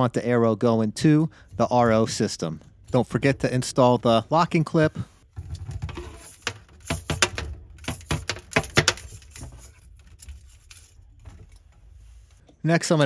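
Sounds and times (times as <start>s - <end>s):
rubbing of plastic tubing: 5.2s - 12.5s.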